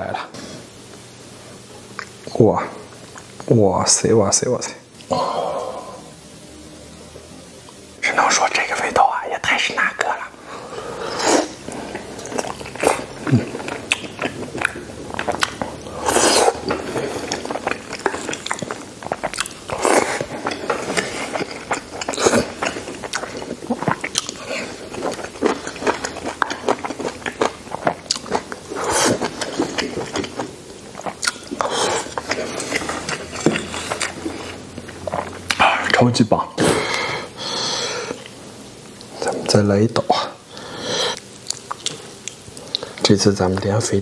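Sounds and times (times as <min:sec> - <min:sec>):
man chewing and lip-smacking: 0:11.1 - 0:36.0, 0:40.5 - 0:43.0.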